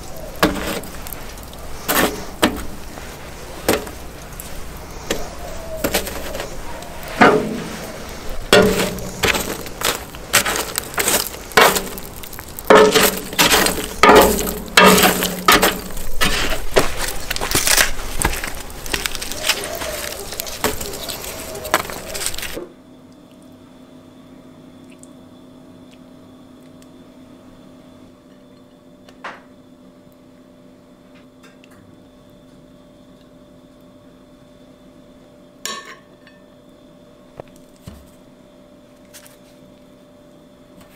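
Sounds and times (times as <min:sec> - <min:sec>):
charcoal chunks clinking: 0:00.0 - 0:22.6, 0:35.6 - 0:36.4
embers scraped in steel box: 0:00.0 - 0:22.6
low steady hum: 0:00.0 - 0:29.0.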